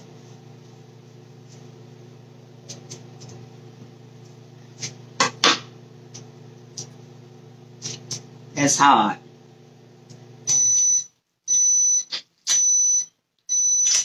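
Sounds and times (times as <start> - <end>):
appliance hum: 0.0 - 11.0.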